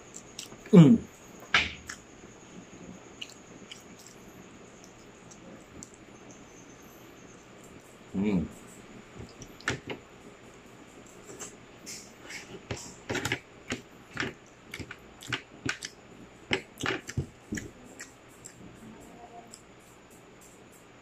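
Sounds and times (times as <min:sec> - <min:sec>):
crunchy chewing: 0:00.0 - 0:00.9, 0:03.1 - 0:06.1, 0:11.1 - 0:18.8.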